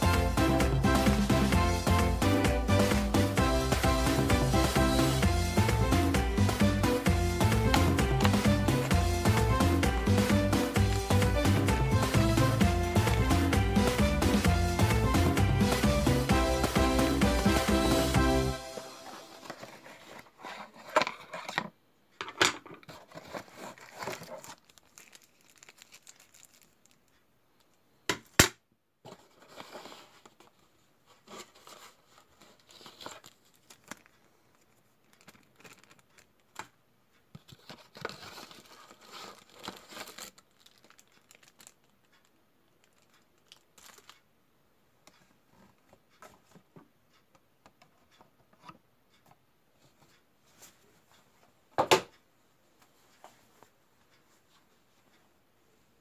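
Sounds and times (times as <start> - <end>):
plastic wrapping crinkling: 22.8 - 27.7, 31.2 - 36.6, 37.4 - 44.2.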